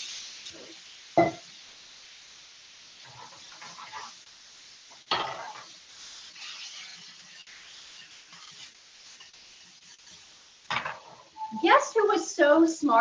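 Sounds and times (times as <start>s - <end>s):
food sizzling in frying pan: 0.0s - 13.0s
wooden spatula scraping pan: 3.0s - 4.2s, 5.2s - 11.8s.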